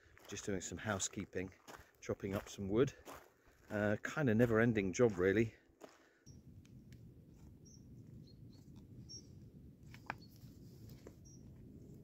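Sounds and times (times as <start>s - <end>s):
primer bulb squeaks: 11.2s - 11.5s.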